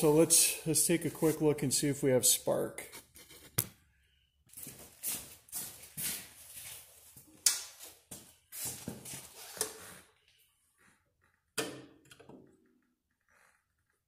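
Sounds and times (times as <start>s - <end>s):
rustling and scraping: 2.8s - 3.7s.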